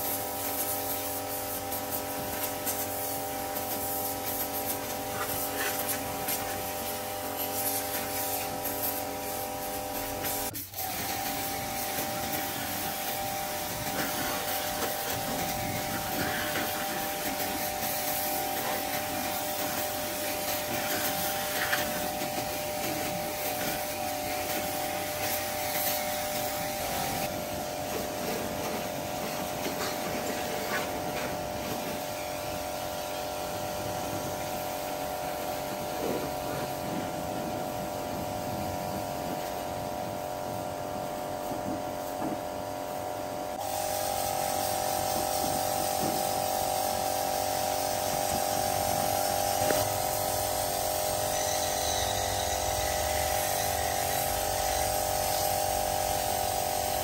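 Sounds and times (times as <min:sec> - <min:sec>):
small electric tool humming: 0:43.6 - 0:57.0.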